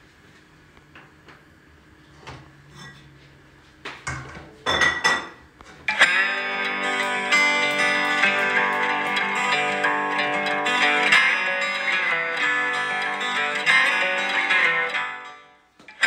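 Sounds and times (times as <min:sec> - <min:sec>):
guitar music: 0:05.9 - 0:16.0.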